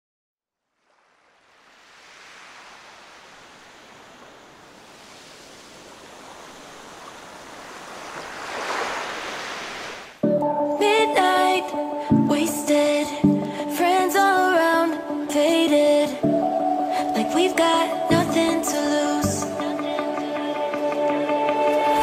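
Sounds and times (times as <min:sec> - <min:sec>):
surf washing up a beach: 0:00.8 - 0:10.2
music: 0:10.2 - 0:22.0.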